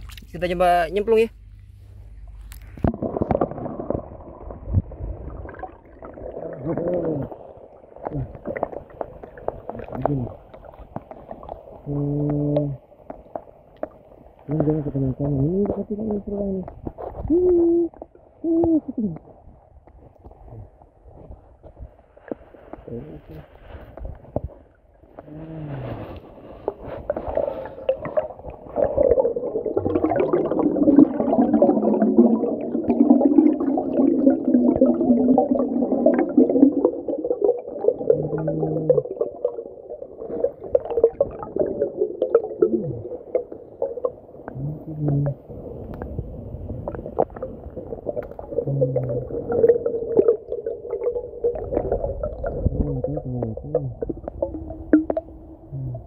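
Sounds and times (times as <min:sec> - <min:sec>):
underwater water sloshing: 0:01.4 - 0:11.9, 0:19.2 - 0:55.6.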